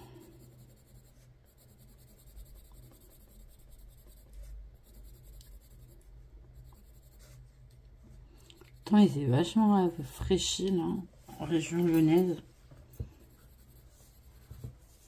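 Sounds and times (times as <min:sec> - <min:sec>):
coloured pencil scratching on paper: 0:00.0 - 0:07.7, 0:08.6 - 0:10.1, 0:13.1 - 0:15.0.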